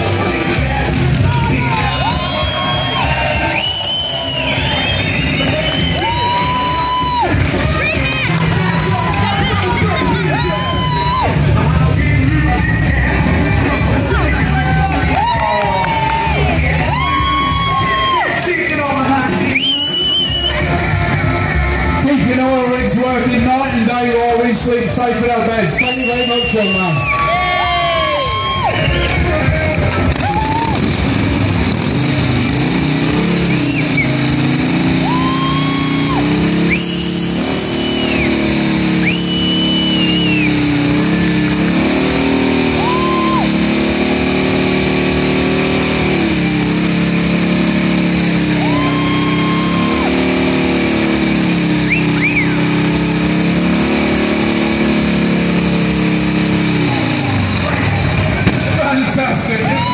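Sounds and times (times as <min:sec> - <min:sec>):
motorcycle engine revving: 0:00.0 - 0:27.2, 0:28.6 - 0:59.9.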